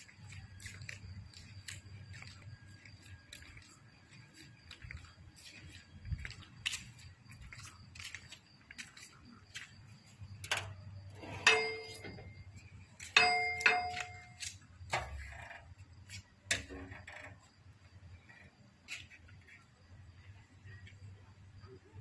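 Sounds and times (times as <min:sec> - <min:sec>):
footsteps: 0:00.0 - 0:10.2
sharp metal clangs: 0:11.2 - 0:12.4, 0:13.0 - 0:14.4.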